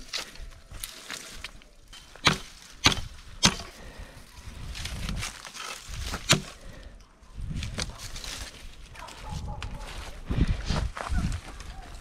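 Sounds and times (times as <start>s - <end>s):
dry branches snapping: 0.0s - 4.0s, 4.6s - 6.8s, 7.6s - 9.8s
dry brush rustling: 0.0s - 6.8s, 7.5s - 12.0s.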